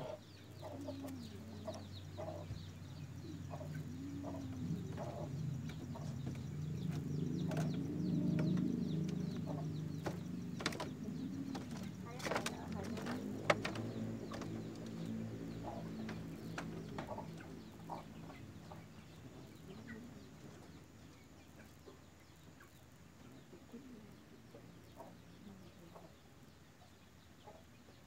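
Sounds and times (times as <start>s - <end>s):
faint scattered clicks: 4.4s - 18.4s.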